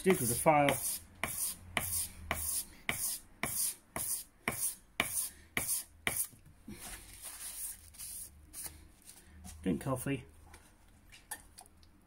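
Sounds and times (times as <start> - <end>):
sandpaper scratching on steel: 0.1 - 6.3, 7.3 - 8.7.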